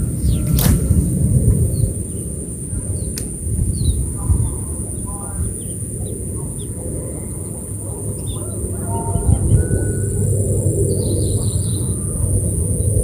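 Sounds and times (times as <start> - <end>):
insects droning: 0.0 - 13.0
low microphone rumble: 0.0 - 13.0
bird chirps: 3.0 - 13.0.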